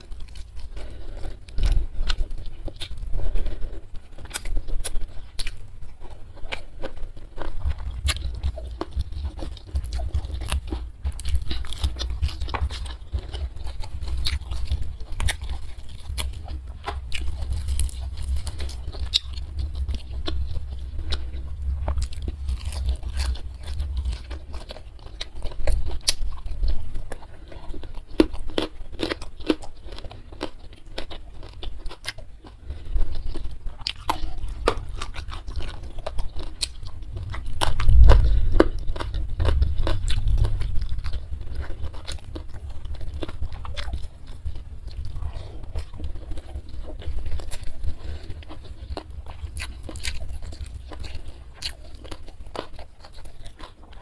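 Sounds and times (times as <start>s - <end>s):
person chewing and crunching: 0.0s - 54.0s
low rumble: 7.6s - 27.9s, 32.7s - 52.0s.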